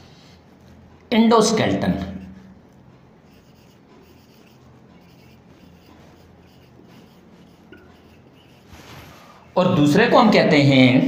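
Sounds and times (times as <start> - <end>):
marker writing on whiteboard: 1.9 - 9.6.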